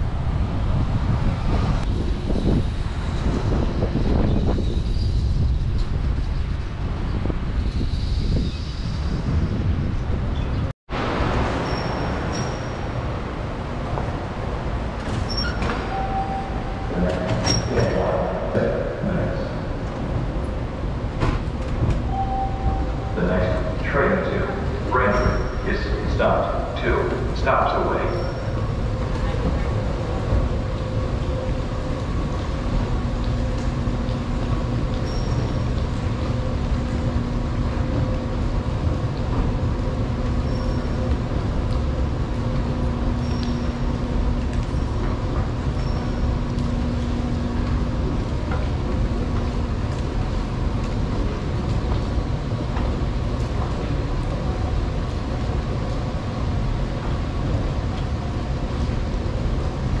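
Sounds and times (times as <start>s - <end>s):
escalator rumbling: 0.0s - 60.0s
low tone: 22.0s - 26.1s.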